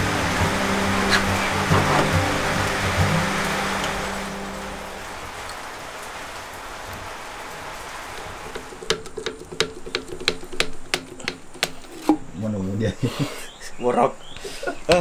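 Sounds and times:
rain hissing: 0.0s - 15.0s
sharp irregular clicks and knocks: 8.5s - 12.2s.

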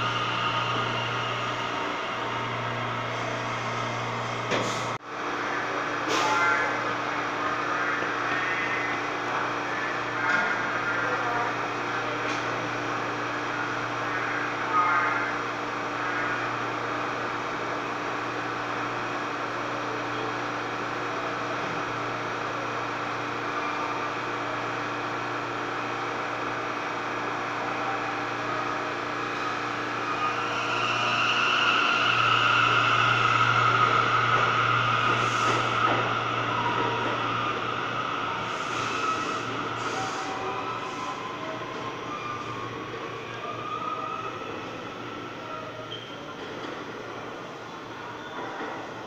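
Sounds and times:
subway train hum: 0.0s - 49.0s.

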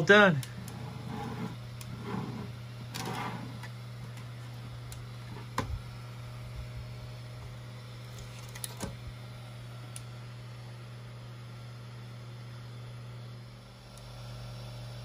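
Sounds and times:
plastic object rustling and scraping: 0.6s - 3.7s.

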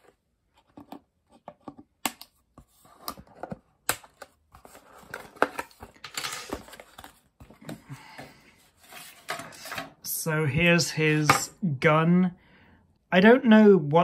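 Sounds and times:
rustling and scraping of cardboard: 4.5s - 9.9s.

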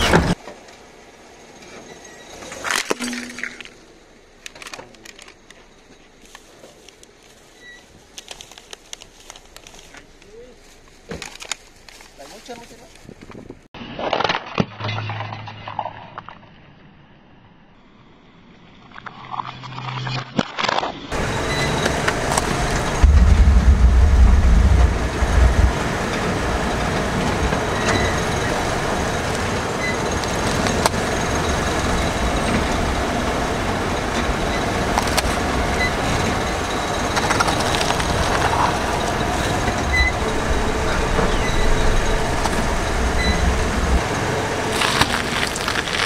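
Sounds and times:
car rolling on concrete: 21.1s - 46.0s.

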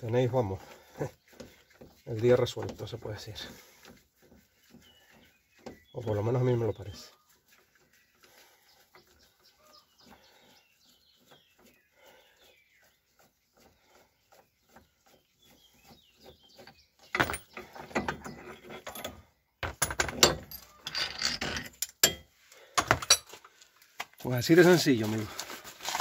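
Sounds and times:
faint bird chirps: 4.6s - 18.8s
steel tool clinking and clanking: 17.1s - 23.4s.

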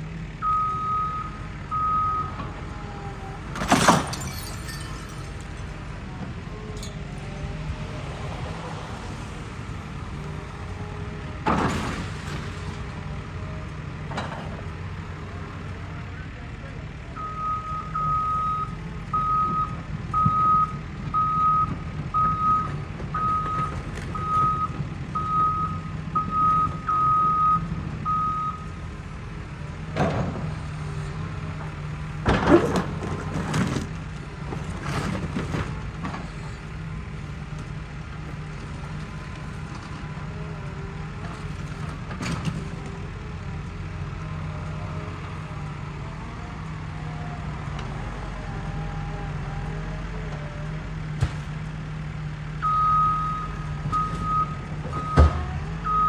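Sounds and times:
excavator engine running: 0.0s - 56.0s
demolition debris crashing: 3.4s - 5.8s, 32.2s - 36.4s.

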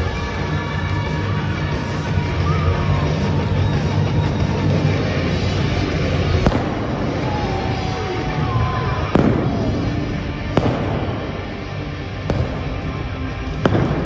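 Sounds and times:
loud music: 0.0s - 14.0s
pyrotechnic flame jets: 4.1s - 14.0s
sharp bangs: 6.3s - 8.0s, 9.0s - 14.0s.

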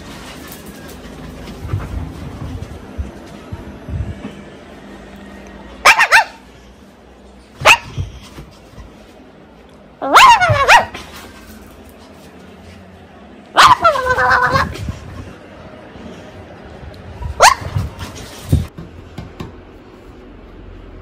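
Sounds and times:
small dog barking: 5.8s - 6.4s, 7.6s - 8.0s, 10.0s - 11.1s, 13.6s - 14.7s, 17.3s - 17.9s.

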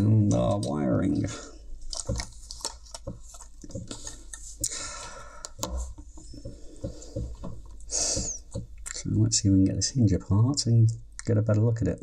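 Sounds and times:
headphones being handled: 0.2s - 8.9s
light plastic clicks and knocks: 1.9s - 4.7s.

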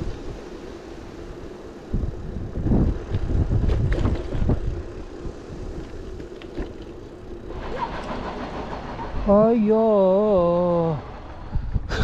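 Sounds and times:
wind buffeting microphone: 0.0s - 12.0s
bike jolting knocks: 3.1s - 4.7s, 5.8s - 7.2s.

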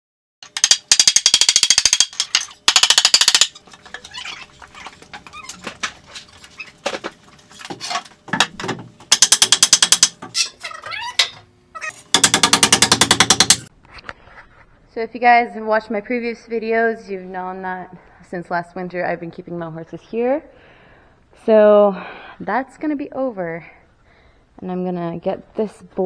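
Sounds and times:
impact driver hammering screws: 12.1s - 13.7s.

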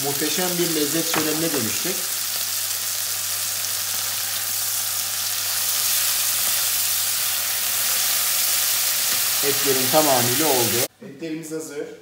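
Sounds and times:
steaks sizzling in butter: 0.0s - 10.9s.

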